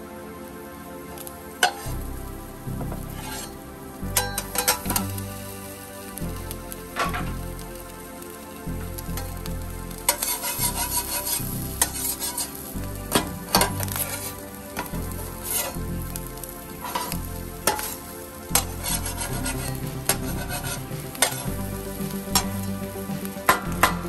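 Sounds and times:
omelette sizzling: 0:00.2 - 0:24.0
metal spatula scraping griddle: 0:03.1 - 0:03.6, 0:10.1 - 0:12.6, 0:15.4 - 0:15.8, 0:16.8 - 0:18.0, 0:18.6 - 0:21.4.

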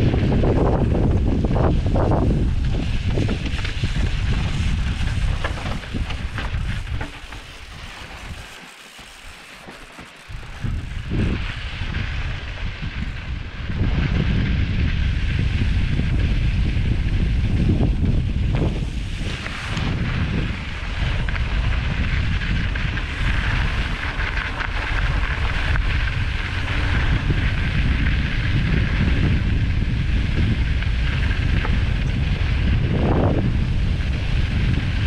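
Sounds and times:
wind buffeting microphone: 0:00.0 - 0:08.6, 0:10.2 - 0:35.0
tyres crunching over gravel: 0:02.3 - 0:11.7
bike rattling clicks: 0:02.6 - 0:11.9.

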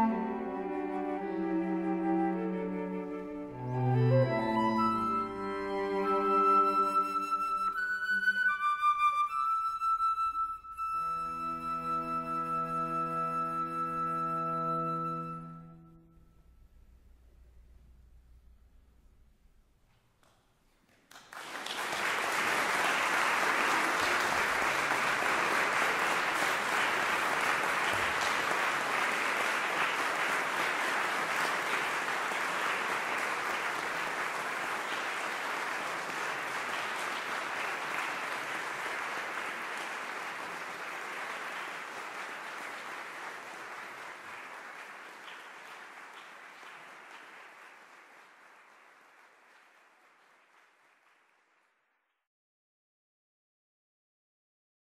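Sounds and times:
audience applauding: 0:20.2 - 0:51.8.

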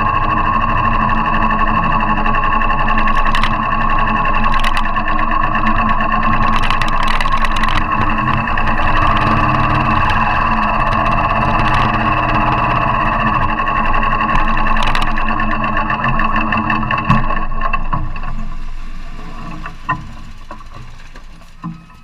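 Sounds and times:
motorcycle engine running: 0:00.0 - 0:19.0
sharp clicks: 0:02.9 - 0:05.2, 0:06.2 - 0:15.5.

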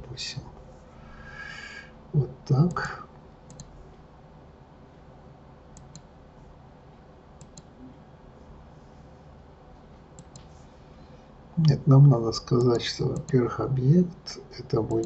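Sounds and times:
low steady hiss: 0:00.0 - 0:15.0
computer mouse clicks: 0:03.5 - 0:03.7, 0:05.8 - 0:06.1, 0:07.4 - 0:07.8, 0:10.2 - 0:10.6.

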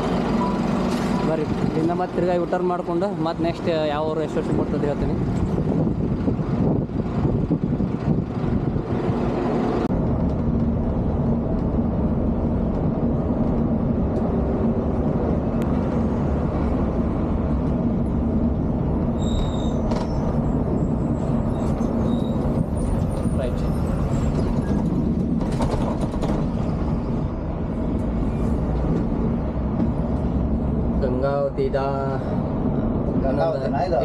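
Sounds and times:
bus diesel engine drone: 0:00.0 - 0:34.0
traffic noise: 0:00.0 - 0:34.0.

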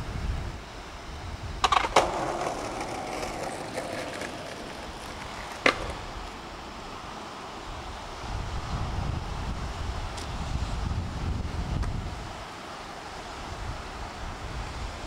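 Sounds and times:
skateboard clacking on concrete: 0:01.6 - 0:06.5
skateboard wheels rolling: 0:01.6 - 0:08.2.

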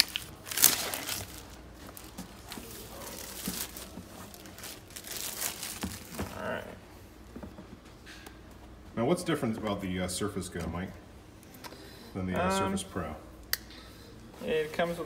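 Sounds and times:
plastic wrap tearing: 0:00.0 - 0:06.2
plastic crinkling and rustling: 0:00.0 - 0:06.4.

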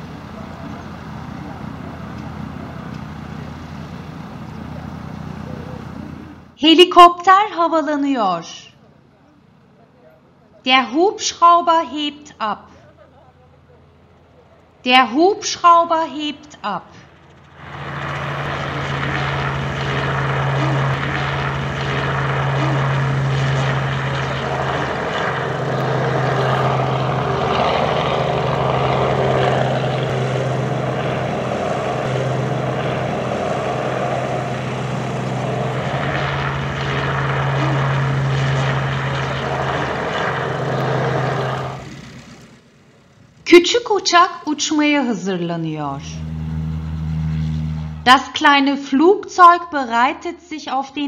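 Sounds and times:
helicopter engine and rotor: 0:00.0 - 0:06.6, 0:16.4 - 0:43.5, 0:45.6 - 0:48.2.

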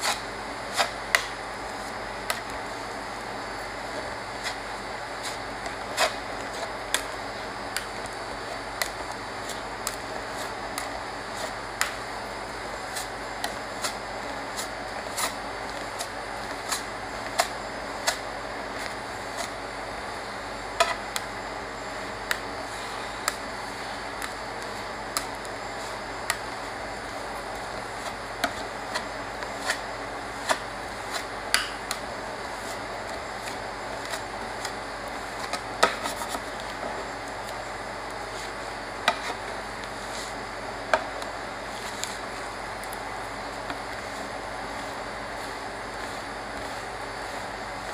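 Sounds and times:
steady hum: 0:00.0 - 0:47.9.

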